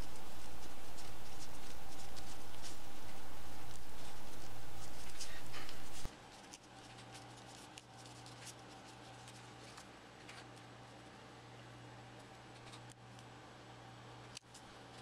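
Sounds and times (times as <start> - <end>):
faint scratching and ticks: 0.0 - 10.5
steady hum and hiss: 0.0 - 15.0.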